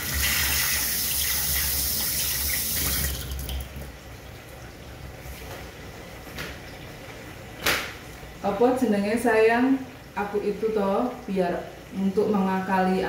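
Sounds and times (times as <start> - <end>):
tap running into sink: 1.5 - 3.7.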